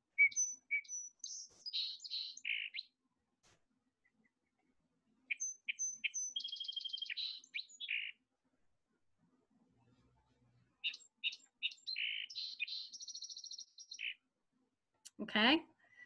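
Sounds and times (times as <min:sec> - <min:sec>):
sparrow song: 0:00.0 - 0:03.2, 0:04.0 - 0:09.0, 0:10.0 - 0:14.4.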